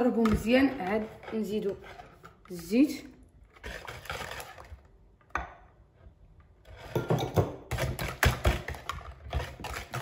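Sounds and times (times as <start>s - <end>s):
whisk beating batter in bowl: 3.5s - 4.8s, 7.7s - 10.0s.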